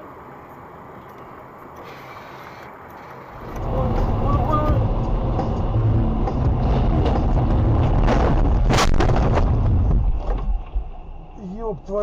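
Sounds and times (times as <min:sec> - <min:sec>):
road and rain noise: 0:00.0 - 0:12.0
car crash bangs and crunches: 0:07.9 - 0:10.4.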